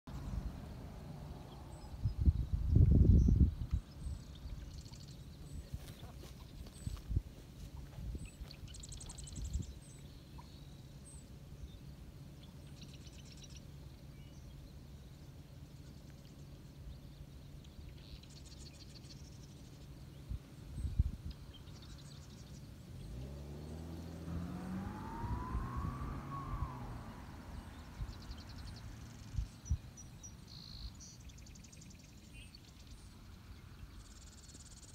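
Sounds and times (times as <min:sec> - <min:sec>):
wind bumps on microphone: 0:01.9 - 0:03.8
motor passing: 0:22.8 - 0:29.3.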